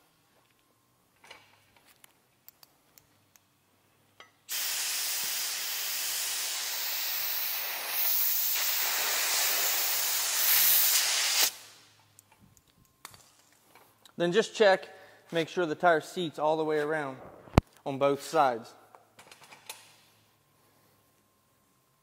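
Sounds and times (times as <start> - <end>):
compressed air hissing into tube: 4.5 - 11.7.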